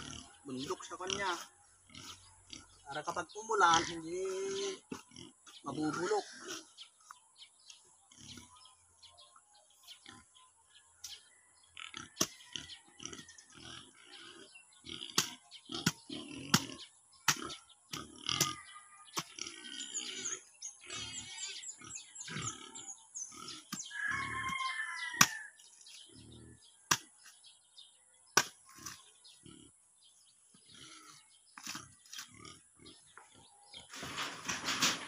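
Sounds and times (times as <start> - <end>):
knife chopping into soil: 26.9 - 27.1, 28.4 - 29.0.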